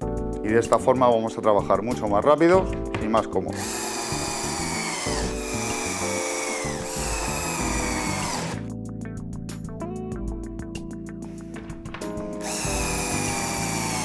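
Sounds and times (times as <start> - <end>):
music: 0.0 - 14.0
cordless drill driving screws: 3.5 - 8.6, 12.4 - 14.0.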